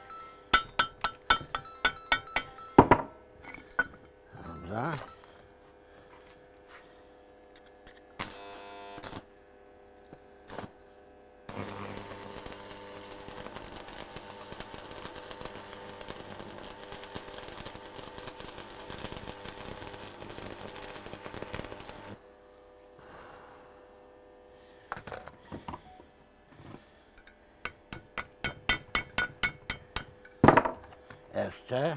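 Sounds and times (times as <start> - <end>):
welding transformer humming: 7.4 - 9.4, 10.0 - 22.8
welding arc crackle: 8.1 - 9.3, 10.4 - 10.8, 11.5 - 22.2
welding arc strikes: 8.1 - 9.3, 11.5 - 22.2.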